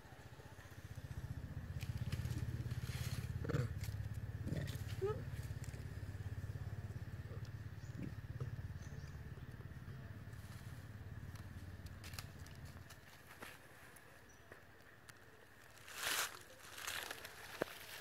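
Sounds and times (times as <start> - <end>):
low engine hum: 0.1 - 13.3
dry leaves rustling underfoot: 1.7 - 5.8, 11.8 - 14.2, 15.1 - 18.0.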